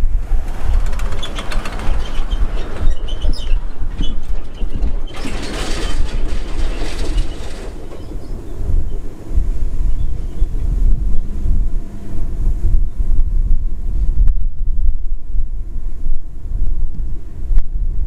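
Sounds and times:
truck passing by: 0.0 - 12.6
tyre and road noise: 0.0 - 17.4
wind rumble on microphone: 0.0 - 18.0
empty trailer rattling and banging: 0.1 - 9.3.

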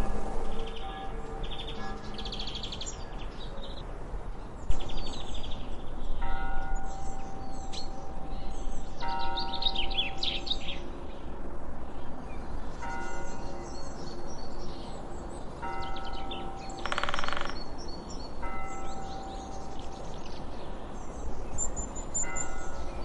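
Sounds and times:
bird chirps: 15.8 - 20.4.

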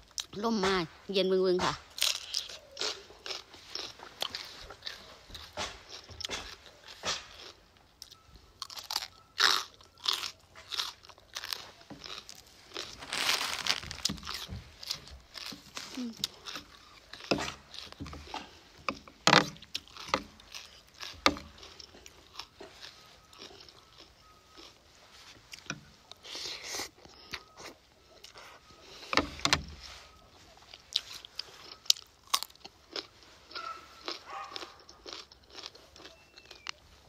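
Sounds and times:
crunching and chewing vegetables: 0.0 - 37.0.

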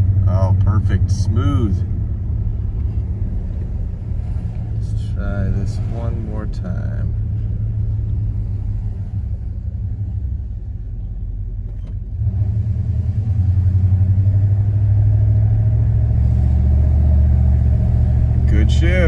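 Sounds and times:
pickup engine idling and accelerating: 0.0 - 19.0.

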